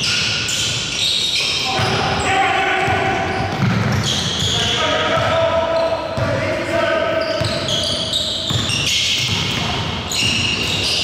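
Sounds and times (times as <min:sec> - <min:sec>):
basketball bouncing on court: 0:01.7 - 0:02.2, 0:02.8 - 0:06.5, 0:07.2 - 0:11.0.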